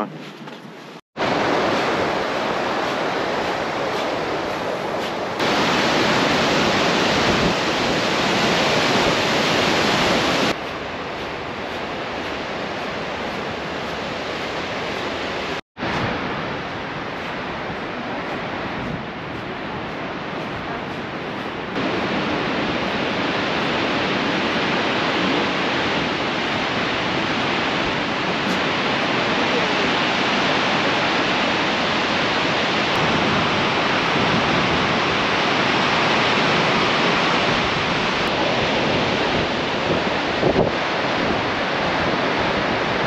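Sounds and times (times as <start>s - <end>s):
waterfall roaring: 1.2s - 43.0s.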